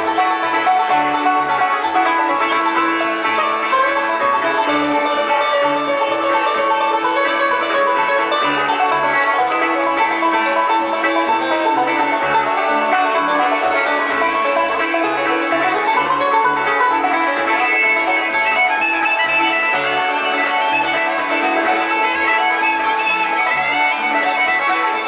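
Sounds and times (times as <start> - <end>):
acoustic guitar: 0.0 - 25.0
banjo: 0.0 - 25.0
fiddle: 0.0 - 25.0.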